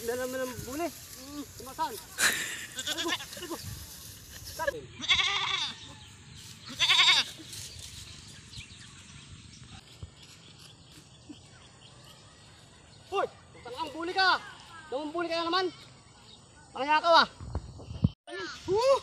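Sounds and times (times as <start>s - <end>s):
goat bleating: 2.2s - 3.6s, 4.9s - 6.0s, 6.7s - 7.5s.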